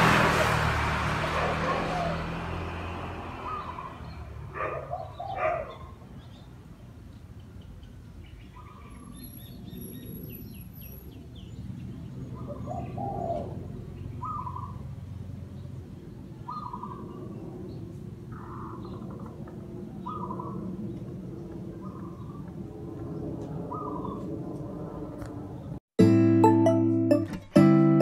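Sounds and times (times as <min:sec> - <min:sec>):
small birds chirping: 0:03.4 - 0:24.3
dove cooing: 0:12.3 - 0:14.8, 0:16.5 - 0:17.3, 0:18.4 - 0:20.7, 0:23.7 - 0:24.3.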